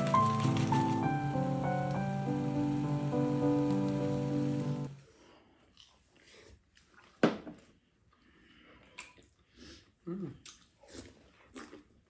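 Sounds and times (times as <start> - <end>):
background music: 0.0 - 5.0
chewing: 5.4 - 9.6, 10.2 - 12.0.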